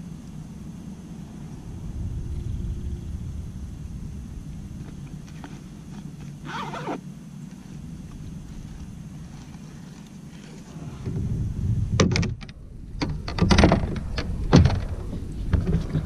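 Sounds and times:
low rumble: 0.0s - 6.4s, 10.6s - 16.0s.

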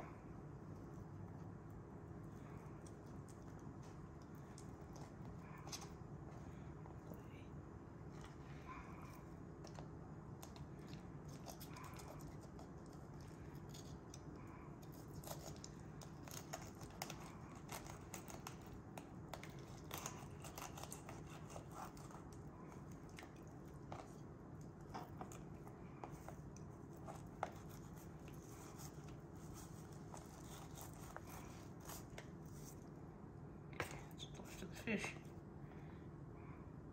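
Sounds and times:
knife slicing and scraping fish: 14.8s - 24.2s, 24.9s - 32.8s.

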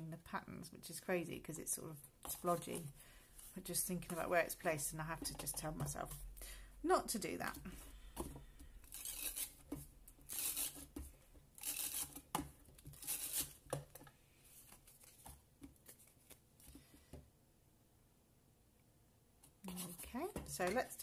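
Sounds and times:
paper rustling: 14.5s - 16.9s.

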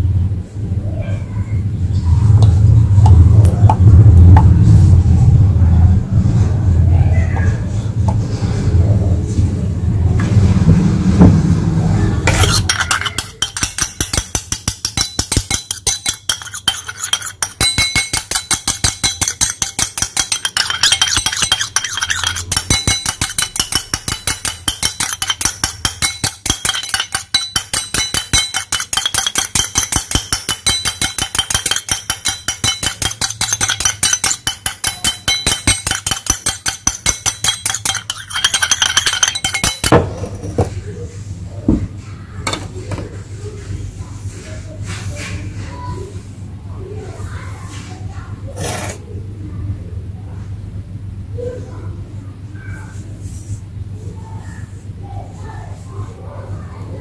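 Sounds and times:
metal spoon clinking in a bowl: 12.3s - 40.0s.

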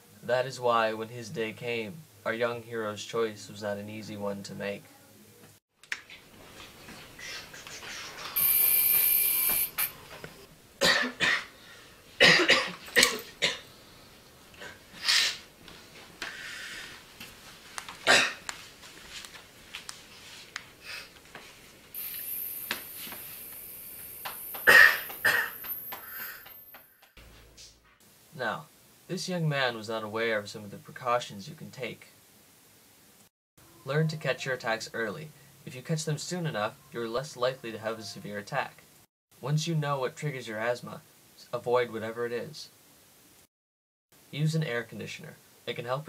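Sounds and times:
faint high hiss: 6.6s - 26.1s
loud steady hiss: 8.3s - 15.5s, 21.8s - 26.0s
person coughing harshly: 10.8s - 11.5s, 12.2s - 13.7s, 18.0s - 18.4s, 24.6s - 25.6s.

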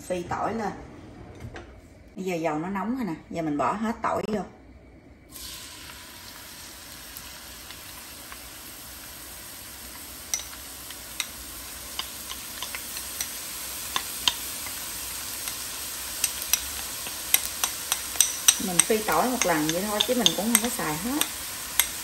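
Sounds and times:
garlic sizzling in hot oil: 5.3s - 22.0s
oil popping and crackling: 5.4s - 22.0s.

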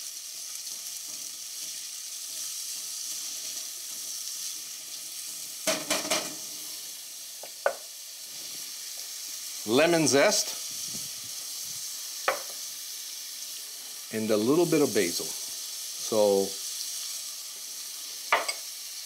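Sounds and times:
spatula stirring in pan: 0.0s - 9.6s
vegetables sizzling in oil: 0.0s - 19.0s.

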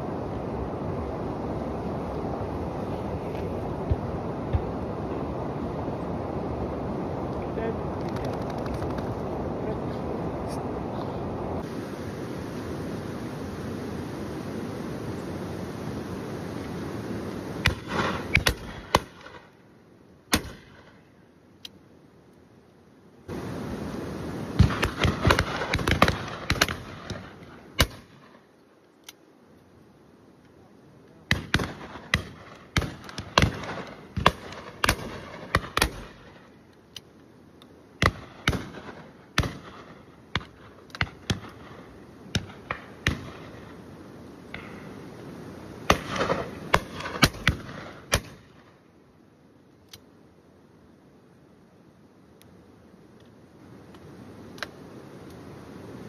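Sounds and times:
shotguns firing: 17.6s - 19.4s, 20.3s - 21.0s, 24.6s - 28.3s, 31.3s - 36.4s, 38.0s - 43.6s, 45.9s - 48.6s.

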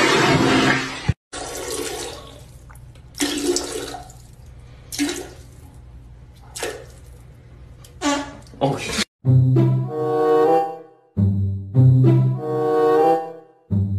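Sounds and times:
toilet flushing water rush: 0.0s - 4.3s.

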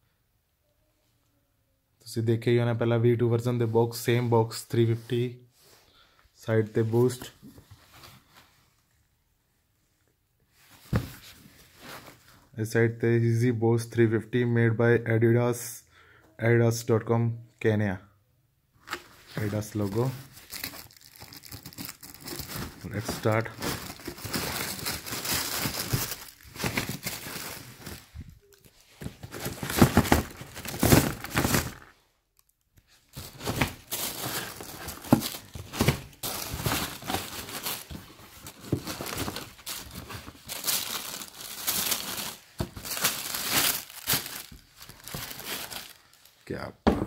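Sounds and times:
tissue paper crinkling: 19.0s - 31.9s, 32.9s - 46.4s.

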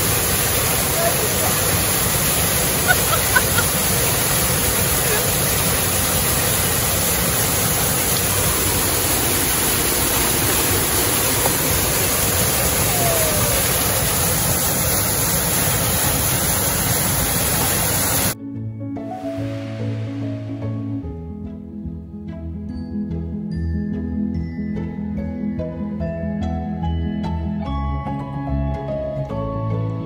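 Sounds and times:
waterfall crashing onto rock: 0.0s - 18.4s.

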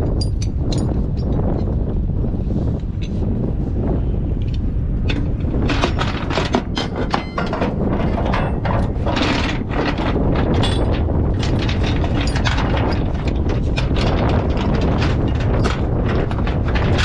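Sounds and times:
wind rumble on microphone: 0.0s - 17.0s
chain links clinking: 6.8s - 17.0s.

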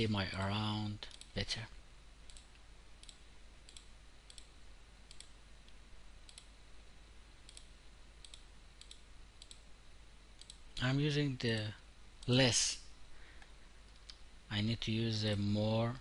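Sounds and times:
low steady hum: 0.0s - 16.0s
faint computer mouse clicks: 2.3s - 4.5s, 5.1s - 6.5s, 7.4s - 9.6s, 10.4s - 10.6s, 13.4s - 14.2s.

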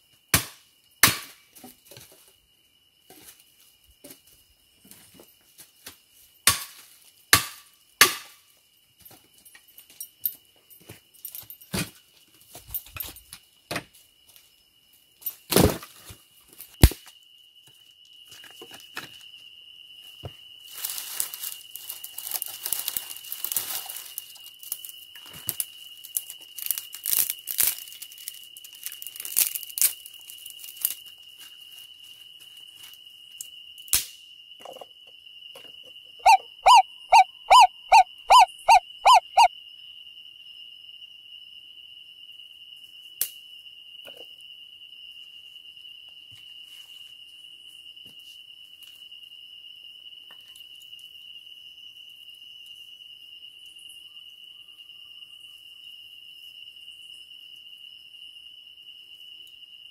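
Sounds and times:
wood pile rustling and crackling: 20.7s - 33.0s
animal calling loudly: 36.2s - 39.5s
high insect buzz: 36.2s - 40.2s.

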